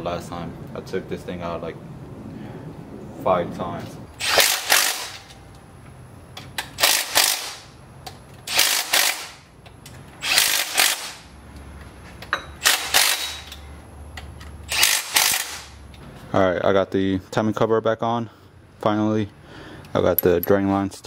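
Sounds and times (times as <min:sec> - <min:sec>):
ratchet wrench clicking: 0:08.5 - 0:09.4, 0:10.2 - 0:11.2, 0:12.6 - 0:13.6, 0:14.2 - 0:15.8.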